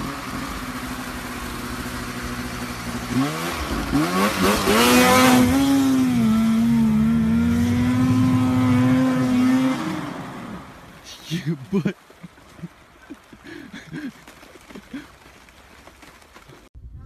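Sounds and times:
snowmobile engine revving: 0.0 - 11.9.

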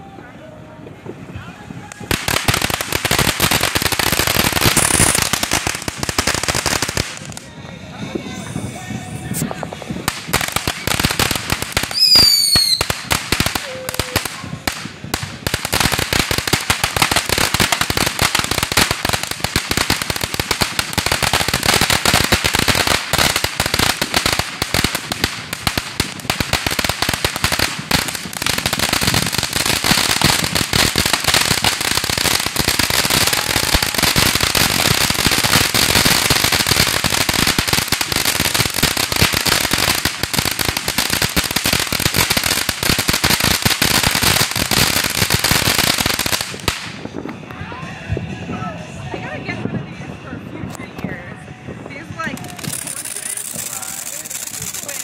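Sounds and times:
firework crackling: 1.7 - 7.6, 9.3 - 47.2, 52.0 - 55.0.

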